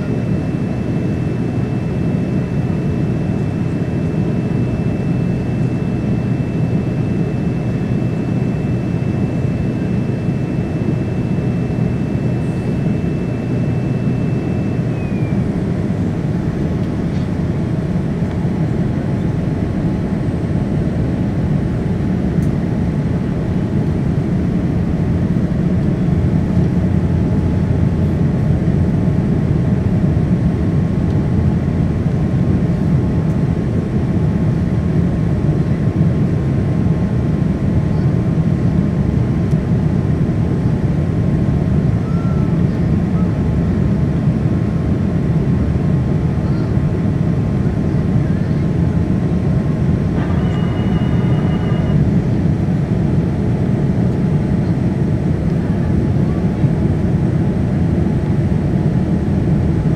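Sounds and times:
thin high whine: 0:00.0 - 0:15.6, 0:49.9 - 0:52.6
airplane cabin engine rush: 0:00.0 - 0:59.9.

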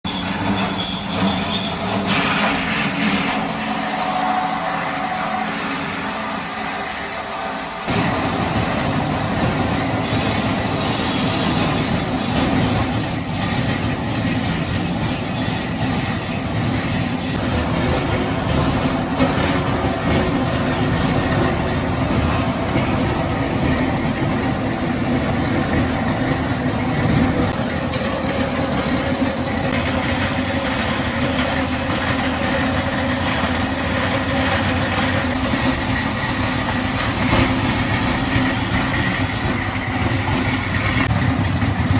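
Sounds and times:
plastic crusher grinding clatter: 0:00.1 - 0:04.9.

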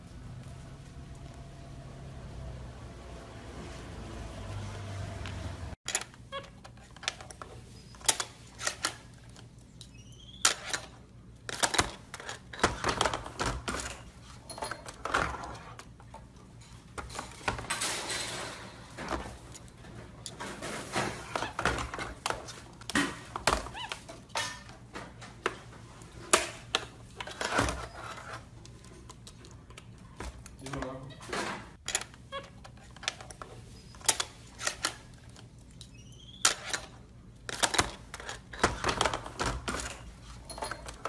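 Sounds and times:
monkey squeaks: 0:09.9 - 0:10.5.

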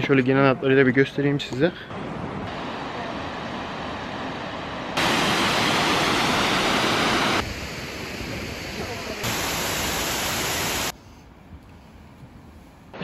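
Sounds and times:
waterfall rushing: 0:02.5 - 0:10.9.

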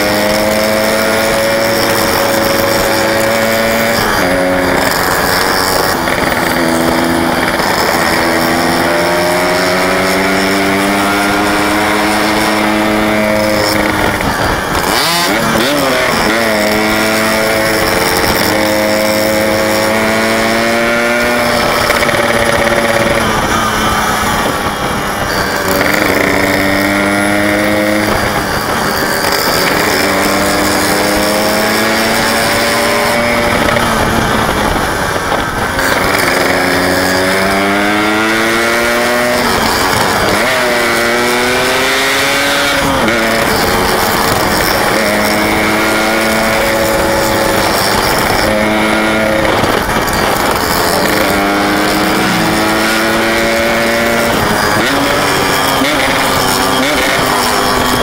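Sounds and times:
steady rush of noise: 0:00.0 - 0:58.0
two-stroke motorcycle engine revving: 0:00.0 - 0:58.0.

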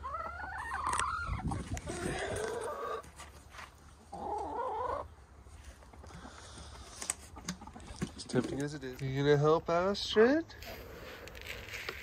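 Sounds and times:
hens clucking: 0:00.0 - 0:09.0.

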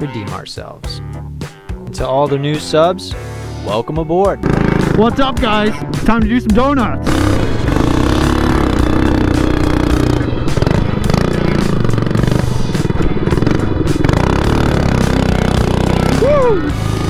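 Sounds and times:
mini bike engine revving: 0:04.4 - 0:05.1, 0:07.0 - 0:17.0.

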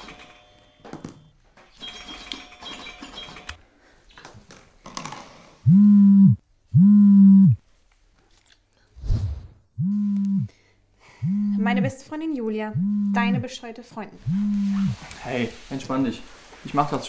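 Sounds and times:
phone vibrating on wooden floor: 0:05.7 - 0:07.6, 0:09.8 - 0:10.5, 0:11.2 - 0:11.9, 0:12.8 - 0:13.4, 0:14.2 - 0:15.0.

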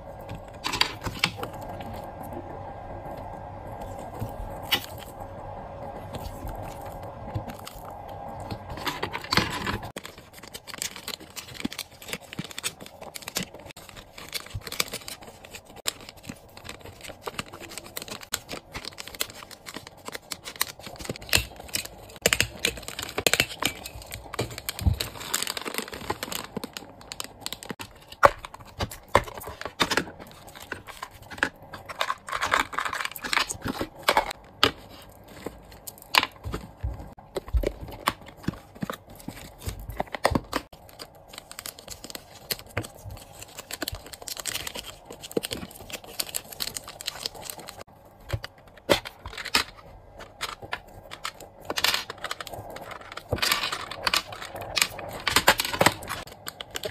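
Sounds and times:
plastic bags crinkling: 0:06.1 - 0:56.9
plastic items clicking: 0:08.4 - 0:56.9.

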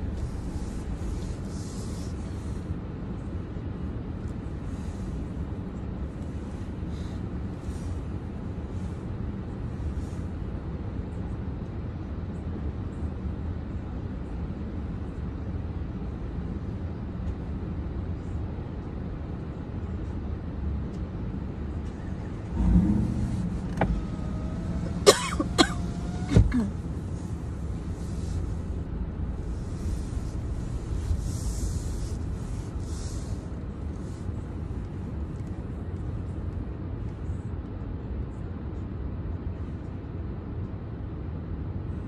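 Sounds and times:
car engine idling: 0:00.0 - 0:02.8, 0:21.5 - 0:36.1.

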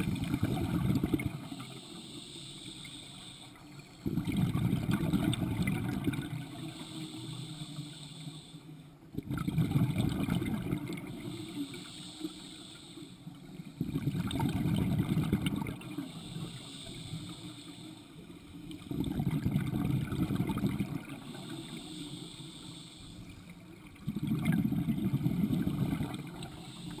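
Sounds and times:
bubbles rumbling out: 0:00.0 - 0:01.4, 0:04.0 - 0:06.4, 0:09.2 - 0:11.0, 0:13.9 - 0:15.8, 0:18.8 - 0:21.1, 0:24.0 - 0:26.4
regulator hissing on inhale: 0:00.0 - 0:09.1, 0:10.6 - 0:18.8, 0:19.7 - 0:23.8, 0:25.1 - 0:27.0.

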